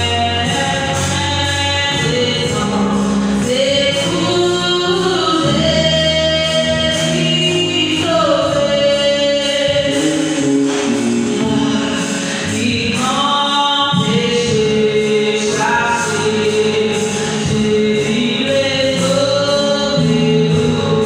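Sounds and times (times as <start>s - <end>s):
gospel singing in harmony: 0.0s - 21.0s.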